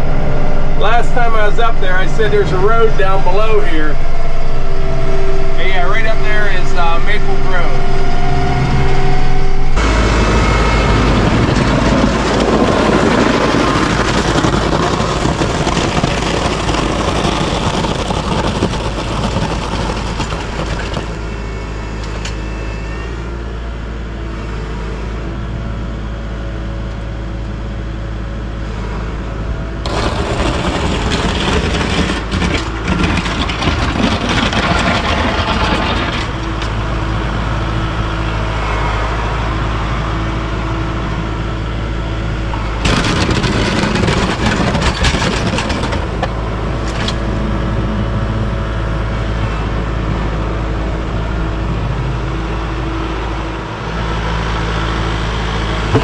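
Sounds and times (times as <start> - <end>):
loud noise: 0.0 - 23.2, 29.8 - 48.6
tractor diesel engine running: 0.0 - 56.0.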